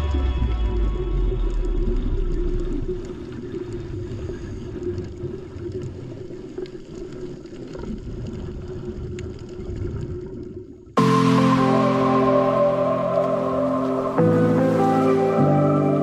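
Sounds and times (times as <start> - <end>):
low underwater hum and rumble: 0.0 - 11.4.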